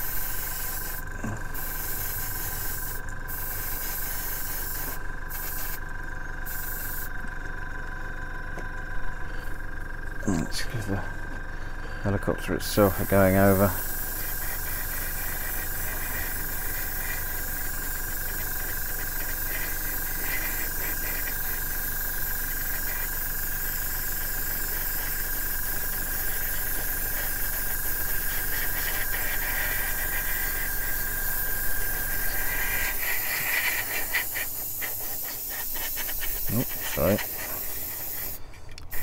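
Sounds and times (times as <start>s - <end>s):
airbrush hissing: 0.0s - 7.2s, 12.7s - 39.0s
steady whine and low hum: 0.0s - 39.0s.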